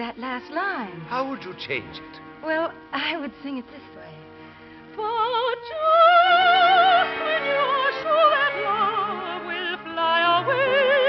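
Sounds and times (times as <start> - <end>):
orchestral accompaniment: 0.0 - 11.0
soprano singing operatically: 5.0 - 11.0.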